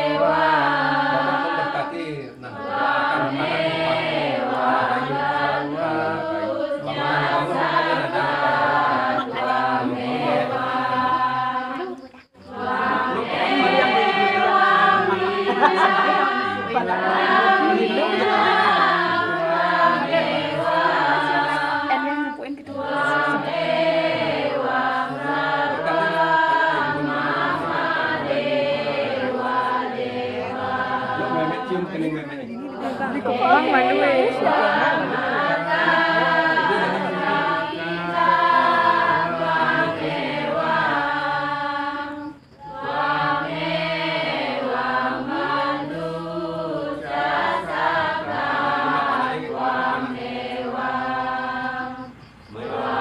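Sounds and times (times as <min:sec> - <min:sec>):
voices singing a chant: 0:00.0 - 0:53.0.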